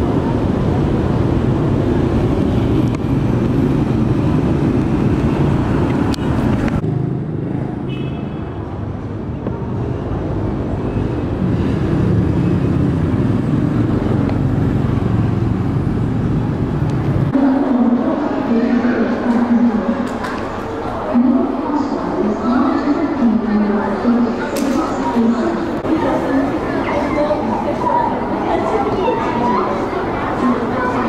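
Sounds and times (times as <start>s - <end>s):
motorbikes and cars passing: 0.0s - 17.6s.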